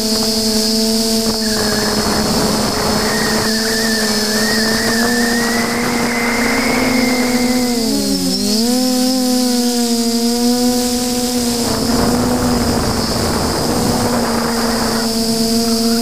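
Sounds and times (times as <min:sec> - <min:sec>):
drone motors and propellers whining: 0:00.0 - 0:16.0
rushing noise: 0:01.2 - 0:08.3.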